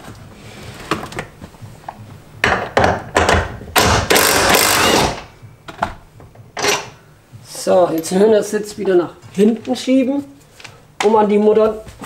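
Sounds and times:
impact wrench running: 2.6s - 5.3s.

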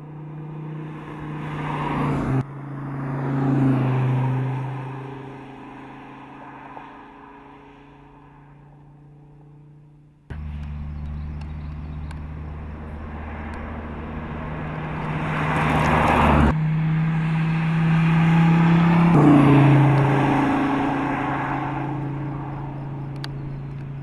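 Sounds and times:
sports car engine running: 9.4s - 24.0s.

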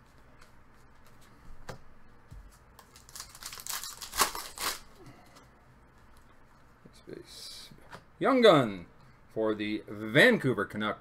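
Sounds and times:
wrapper crinkling and tearing: 2.8s - 4.9s.

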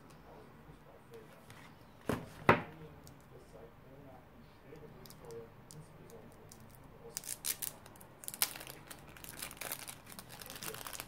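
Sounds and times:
foil wrapper crinkling and tearing: 7.1s - 11.0s.

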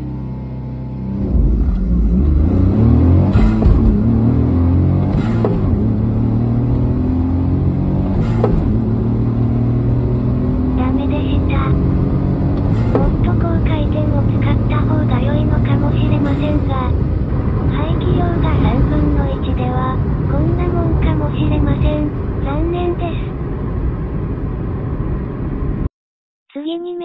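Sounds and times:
small car engine revving and accelerating: 0.0s - 16.7s.

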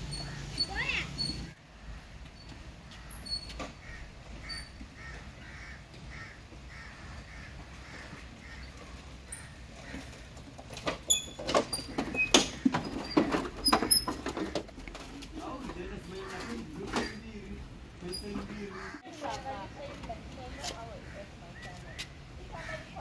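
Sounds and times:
bird calling: 0.0s - 10.2s, 11.1s - 19.0s
sharp knocks and clatters: 9.8s - 17.2s.

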